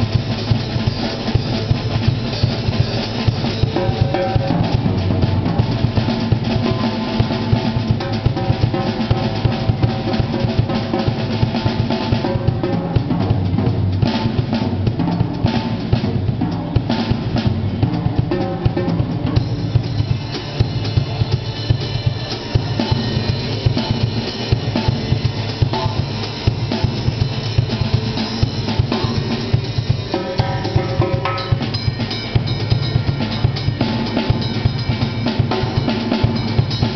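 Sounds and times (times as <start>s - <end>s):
drum kit playing groove: 0.0s - 36.9s.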